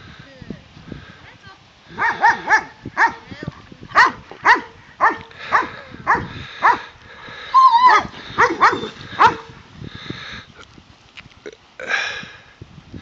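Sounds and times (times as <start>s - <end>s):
dog barking: 2.0s - 3.2s, 4.0s - 6.8s, 7.9s - 9.5s
dog whining: 7.5s - 9.4s.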